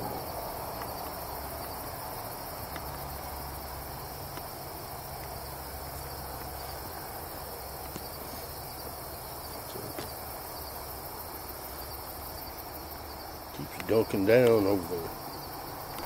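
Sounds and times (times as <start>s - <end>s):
crickets and insects trilling: 0.0s - 16.0s.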